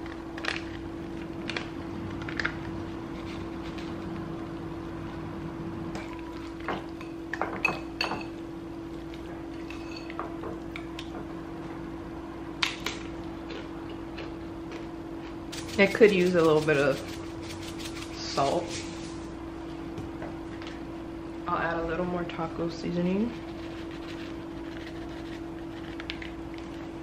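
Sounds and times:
whisk stirring thick mixture: 0:15.5 - 0:19.0, 0:23.1 - 0:26.1.

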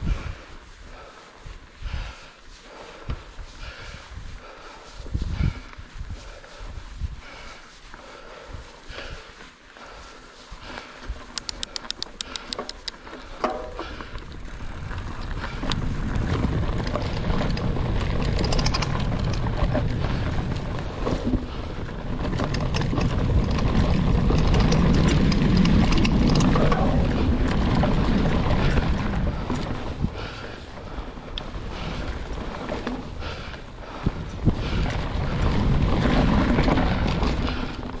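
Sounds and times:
wind buffeting microphone: 0:00.0 - 0:11.6, 0:13.6 - 0:38.0
bicycle freehub clicking: 0:11.2 - 0:36.0
tyres rumbling on dirt: 0:13.2 - 0:38.0.

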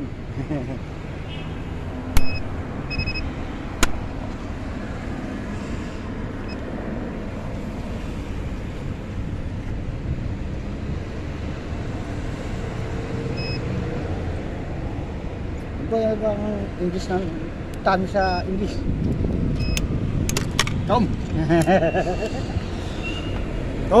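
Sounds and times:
steady background noise: 0:00.0 - 0:24.0
short beeps: 0:02.2 - 0:03.2, 0:13.4 - 0:13.6.

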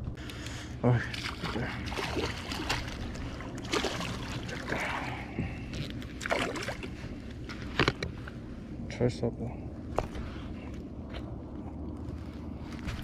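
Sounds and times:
water splashing along hull: 0:00.3 - 0:08.2.

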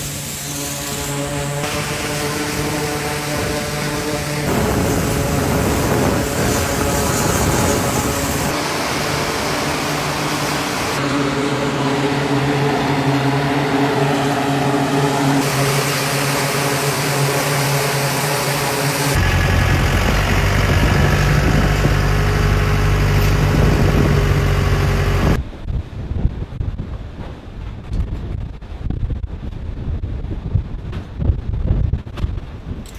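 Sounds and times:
turboprop engines droning: 0:00.0 - 0:29.5
wind buffeting microphone: 0:01.6 - 0:08.6, 0:19.2 - 0:32.9.

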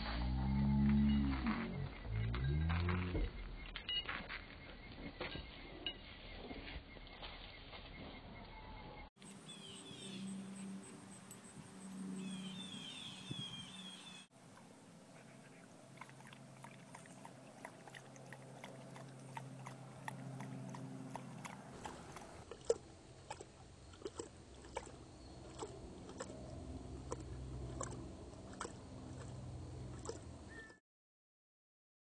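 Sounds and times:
dog lapping water: 0:15.4 - 0:30.7.

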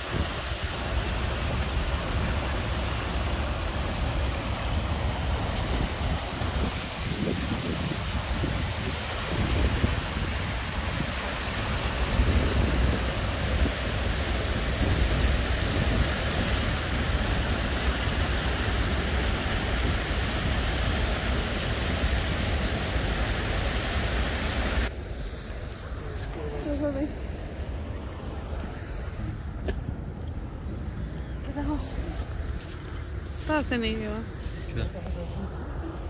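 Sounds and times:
wind rumble on microphone: 0:00.0 - 0:23.4
water rushing over weir: 0:00.0 - 0:30.0.

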